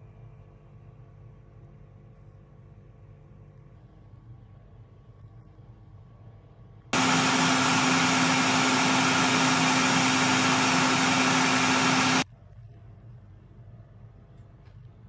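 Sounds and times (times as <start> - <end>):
blender motor whirring: 7.0 - 12.2.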